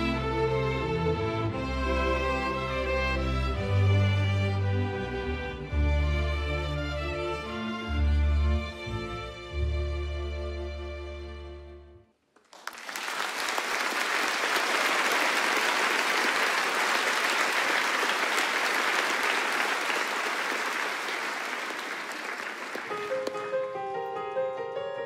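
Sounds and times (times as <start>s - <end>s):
audience applause: 12.4s - 23.4s
piano playing: 22.8s - 25.0s.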